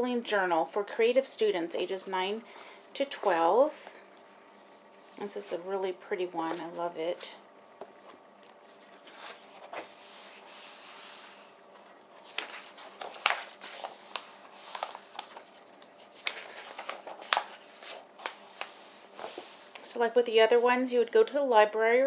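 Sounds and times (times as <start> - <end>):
pages rustling and flicking: 8.0 - 19.9
paper rubbing slide: 9.0 - 11.6, 12.2 - 15.4, 16.2 - 19.9.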